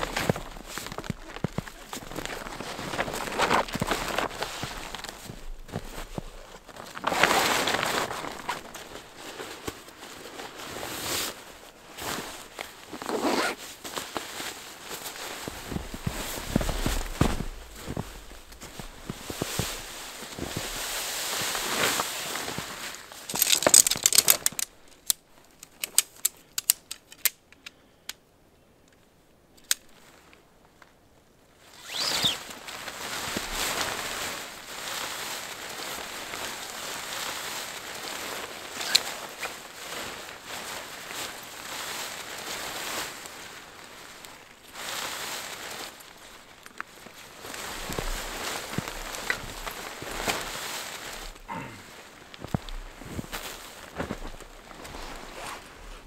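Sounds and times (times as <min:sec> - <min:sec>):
tent fabric rustling: 0:00.0 - 0:25.0, 0:31.6 - 0:56.0
sharp clicks and crackles: 0:23.3 - 0:28.2.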